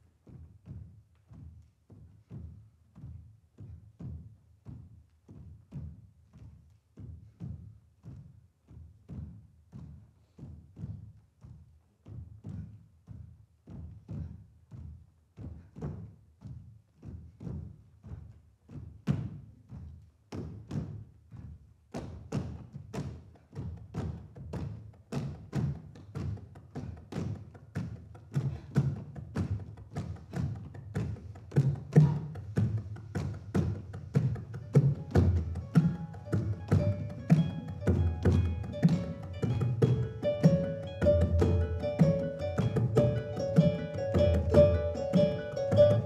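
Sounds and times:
percussive dance music: 0:22.1 - 0:46.0.

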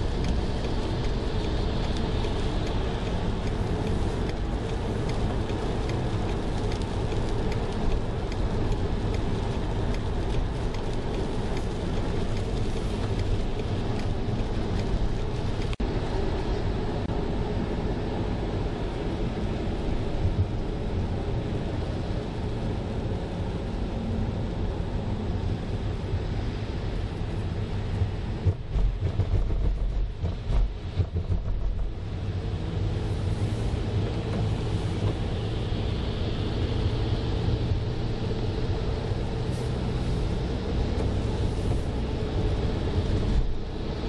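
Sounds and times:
raindrops ticking on windshield: 0:00.0 - 0:15.8
car driving on wet road: 0:00.0 - 0:44.0
engine and tyre rumble: 0:00.0 - 0:44.0
tyre hiss on wet road: 0:32.9 - 0:37.1, 0:39.2 - 0:43.2.

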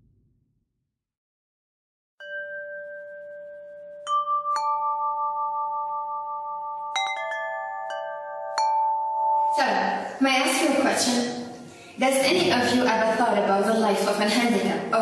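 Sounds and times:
ringing chime notes: 0:02.2 - 0:10.2.

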